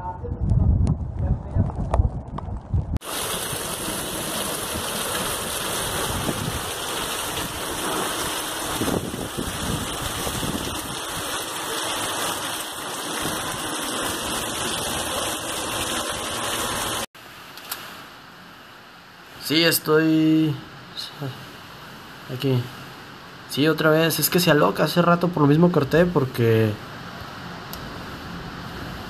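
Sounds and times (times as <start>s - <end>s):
hurricane wind gusting: 0.0s - 17.1s
heavy rain: 3.0s - 19.5s.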